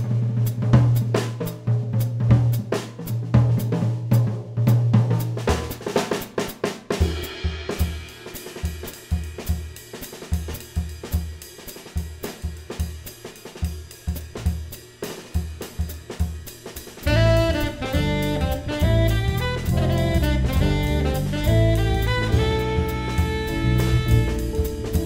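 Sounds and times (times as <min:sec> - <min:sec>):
drum kit groove: 0:00.0 - 0:25.0
tenor saxophone: 0:17.0 - 0:25.0
electric bass notes: 0:17.1 - 0:25.0.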